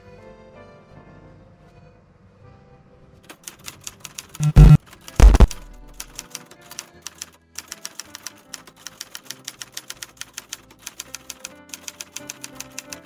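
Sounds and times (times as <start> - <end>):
quiet background music: 0.0 - 13.0
typewriter key clicks: 3.3 - 13.0.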